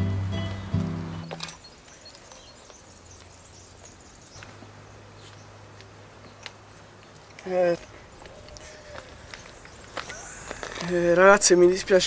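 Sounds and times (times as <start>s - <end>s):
background music: 0.0s - 1.5s.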